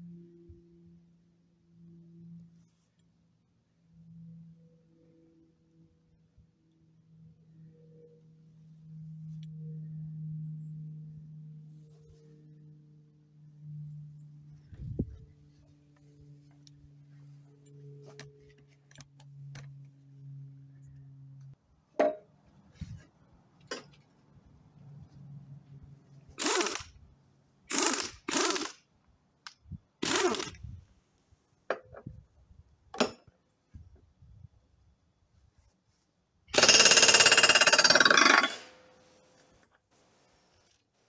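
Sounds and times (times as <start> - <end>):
pneumatic impact wrench hammering: 26.4 - 26.9, 27.7 - 28.8, 30.0 - 30.7, 36.5 - 38.9.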